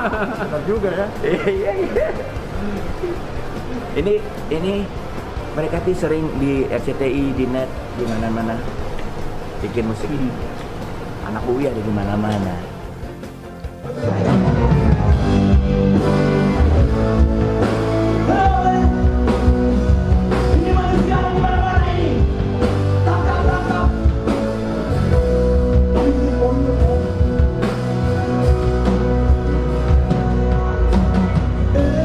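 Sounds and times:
rock band playing: 0:12.7 - 0:32.0
man singing: 0:18.2 - 0:19.3, 0:20.3 - 0:22.3, 0:23.0 - 0:24.6, 0:25.7 - 0:27.7, 0:31.6 - 0:32.0.

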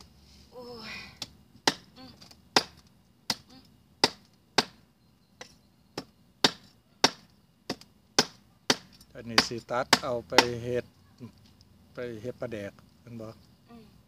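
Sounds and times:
cleaver chopping on wooden board: 0:01.6 - 0:01.9, 0:02.6 - 0:03.4, 0:04.0 - 0:04.8, 0:06.0 - 0:10.6.

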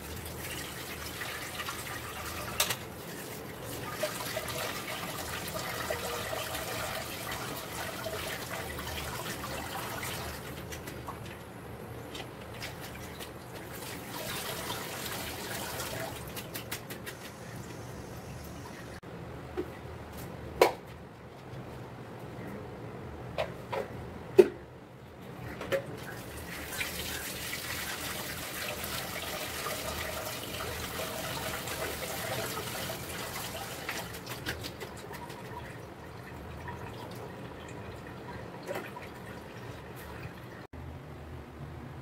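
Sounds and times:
water splashing and pouring: 0:00.0 - 0:11.4, 0:12.5 - 0:16.6, 0:26.0 - 0:40.7.

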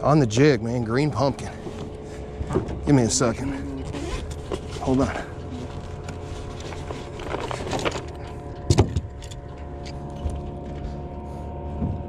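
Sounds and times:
steady hum: 0:00.0 - 0:12.0
metal chain clinking and rattling: 0:06.8 - 0:10.4.

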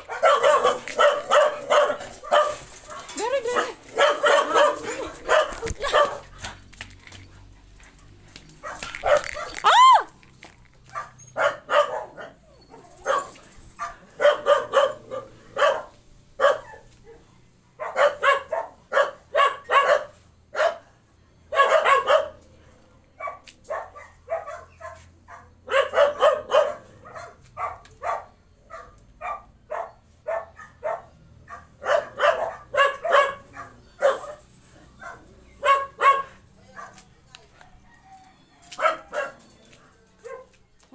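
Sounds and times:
dog barking: 0:00.0 - 0:06.3, 0:08.6 - 0:09.6, 0:10.9 - 0:12.4, 0:13.0 - 0:17.2, 0:17.8 - 0:20.9, 0:21.5 - 0:22.4, 0:23.2 - 0:37.0, 0:38.8 - 0:39.4, 0:40.2 - 0:40.5.

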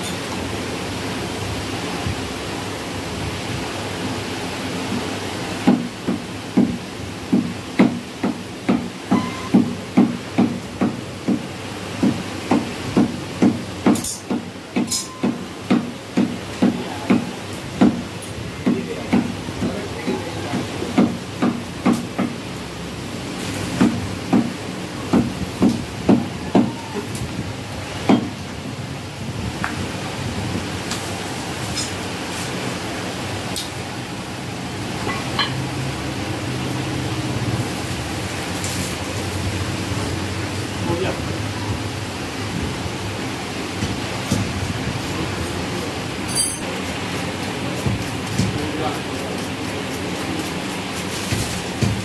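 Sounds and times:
knife chopping on wooden block: 0:47.8 - 0:48.6.

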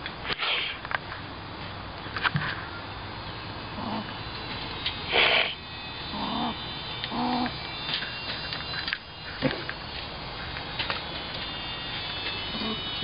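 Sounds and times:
rough squirrel call burst: 0:00.3 - 0:00.8, 0:05.1 - 0:07.5
squirrel calling: 0:03.0 - 0:10.5, 0:11.8 - 0:13.0.

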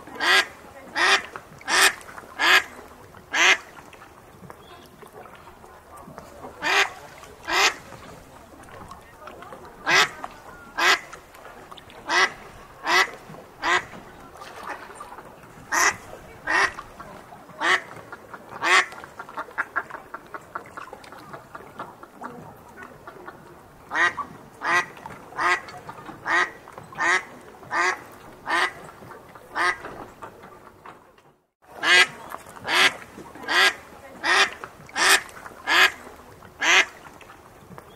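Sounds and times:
duck quacking: 0:00.2 - 0:03.7, 0:06.6 - 0:07.9, 0:09.8 - 0:11.2, 0:12.0 - 0:14.9, 0:15.7 - 0:16.8, 0:17.6 - 0:18.0, 0:18.6 - 0:20.0, 0:23.9 - 0:28.8, 0:29.5 - 0:29.9, 0:31.8 - 0:36.0, 0:36.6 - 0:37.0.

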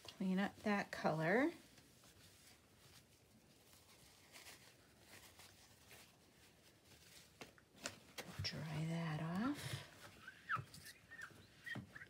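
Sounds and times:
cloth rubbing on glass: 0:08.4 - 0:12.0.

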